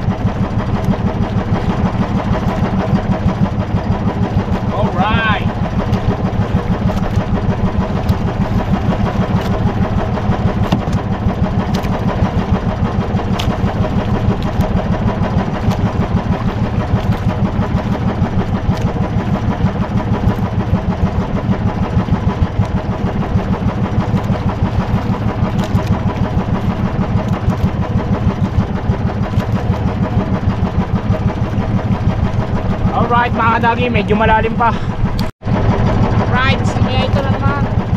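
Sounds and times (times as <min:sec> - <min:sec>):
boat engine pulsing: 0:00.0 - 0:37.9.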